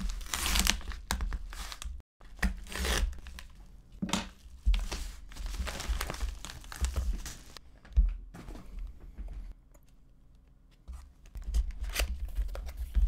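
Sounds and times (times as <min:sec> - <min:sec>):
paper mailer rustling and tearing: 0:00.0 - 0:01.9.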